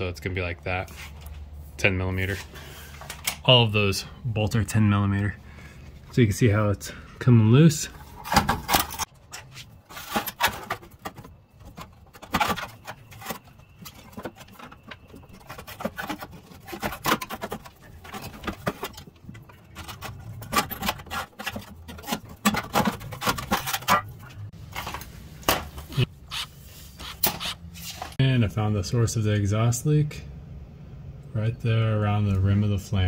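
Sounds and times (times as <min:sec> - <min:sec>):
metal tools clinking and scraping: 0:07.8 - 0:25.1.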